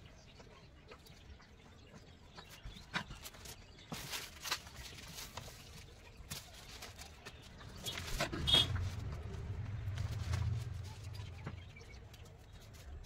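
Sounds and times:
paper sheets rustling: 3.2s - 11.4s.

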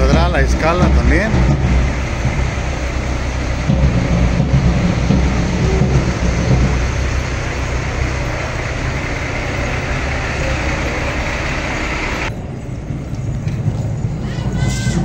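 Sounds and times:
engine running steadily: 0.0s - 15.0s.

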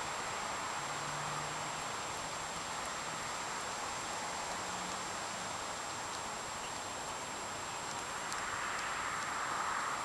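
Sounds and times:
outdoor background hiss: 0.0s - 10.0s.

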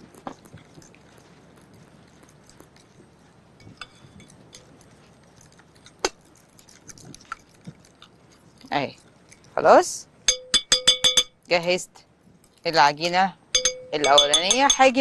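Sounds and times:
fork stirring batter in glass bowl: 0.0s - 9.6s, 13.6s - 15.0s
metal clinking on glass: 10.3s - 11.4s, 13.6s - 15.0s.

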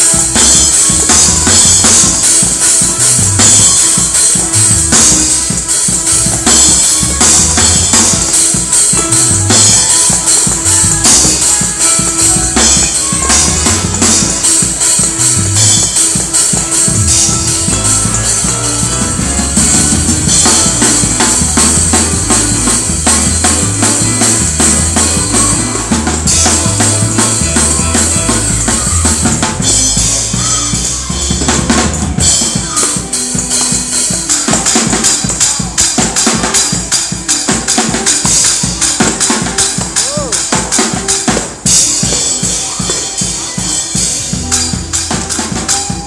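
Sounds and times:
fast drum kit groove: 0.0s - 46.0s
low bass notes: 6.0s - 8.3s, 9.0s - 9.9s, 12.2s - 14.4s, 15.1s - 15.9s, 16.7s - 32.5s.

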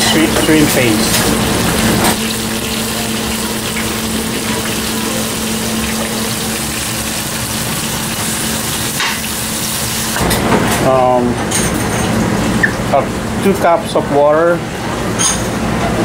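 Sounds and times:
food sizzling in hot oil: 0.0s - 10.2s.

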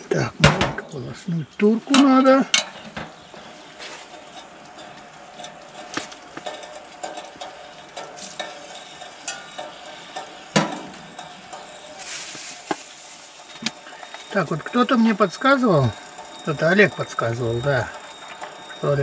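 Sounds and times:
metal pot clinking and knocking: 4.2s - 11.9s.

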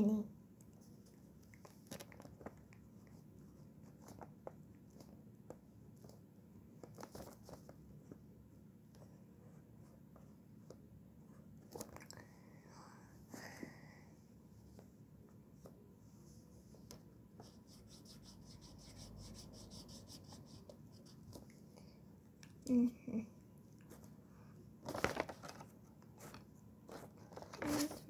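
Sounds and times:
pen scratching on paper: 17.4s - 21.4s.

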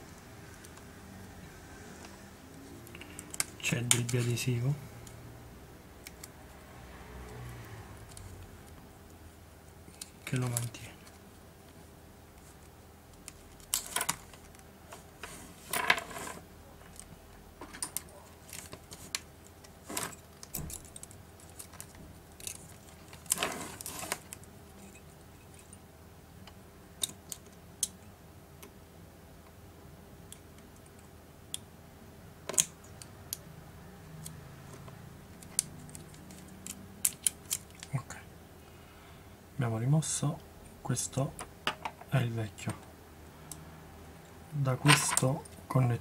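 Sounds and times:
cable scraping rasps: 22.9s - 24.3s.

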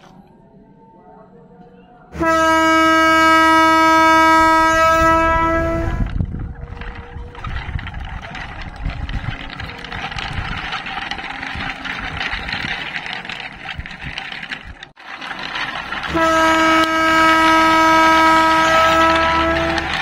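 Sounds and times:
train horn blast: 2.2s - 6.2s, 16.0s - 20.0s
wooden toy train rattling: 4.1s - 20.0s.

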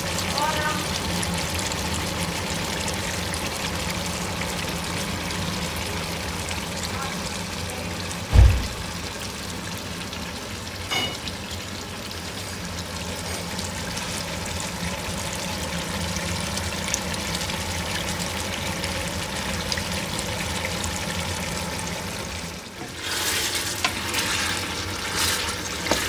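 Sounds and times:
meat sizzling in a pot: 0.0s - 26.0s.

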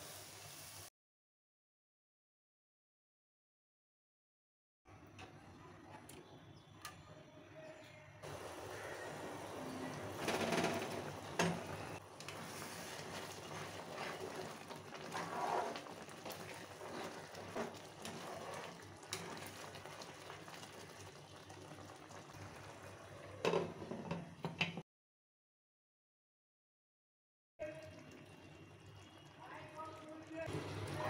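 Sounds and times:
eggs splashing into gravy: 8.2s - 23.0s
gravy bubbling and sizzling: 8.2s - 24.8s, 27.6s - 31.0s.

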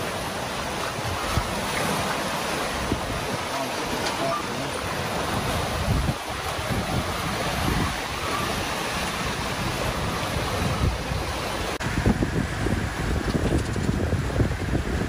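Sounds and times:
choppy sea rushing: 0.0s - 15.0s
wind buffeting microphone: 0.0s - 15.0s.

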